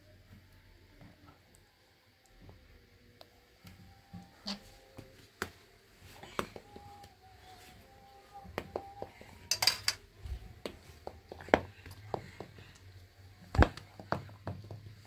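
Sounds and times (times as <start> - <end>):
household items knocking and clinking: 8.7 - 10.0.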